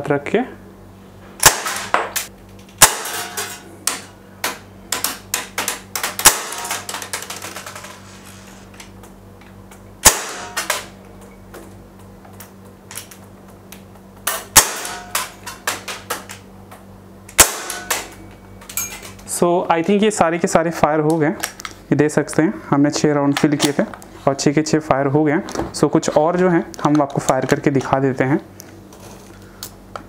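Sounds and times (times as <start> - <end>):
faint steady hum: 0.0 - 30.0
air revolver shots: 1.4 - 2.0, 2.8 - 3.4, 6.0 - 6.8, 10.0 - 10.9, 14.3 - 15.4, 17.4 - 18.1.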